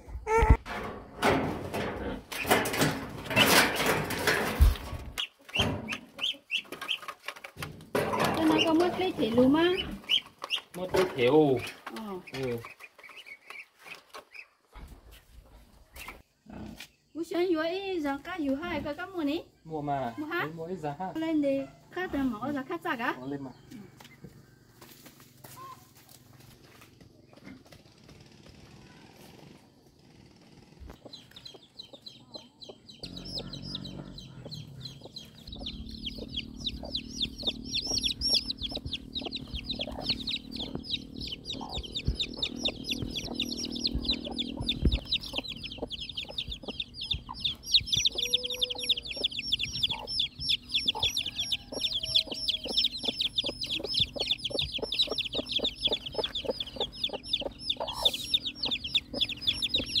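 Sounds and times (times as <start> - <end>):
baby chicks peeping: 2.3 - 15.2, 15.9 - 16.9, 30.8 - 60.0.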